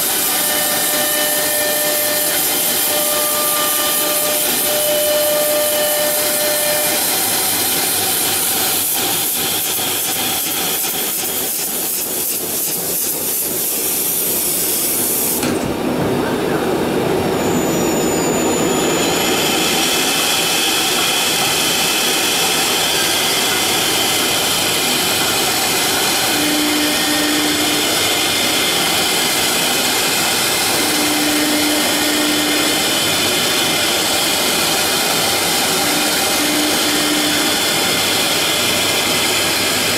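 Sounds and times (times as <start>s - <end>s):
router whining cutting wood: 0.0s - 9.6s, 20.9s - 39.9s.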